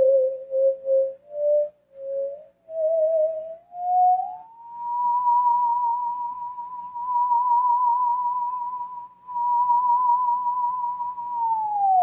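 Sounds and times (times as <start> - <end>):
theremin high note with vibrato: 0.0 - 12.0.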